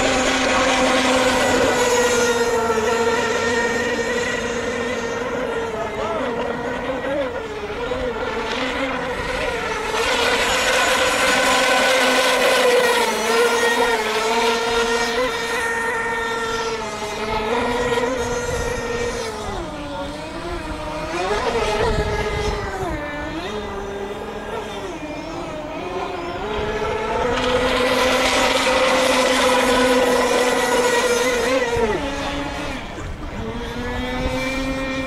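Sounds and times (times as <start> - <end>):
model boat engine whine: 0.0 - 35.0.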